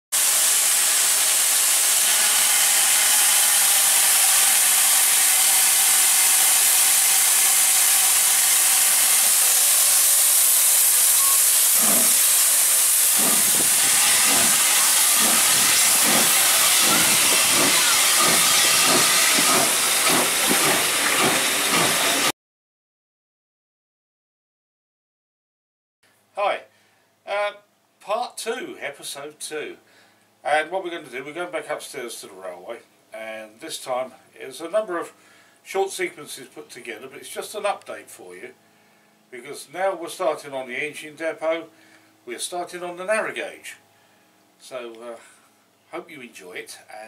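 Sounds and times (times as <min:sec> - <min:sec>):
loud hiss of steam: 0:00.2 - 0:22.3
steam engine chuffing beat: 0:00.2 - 0:22.3.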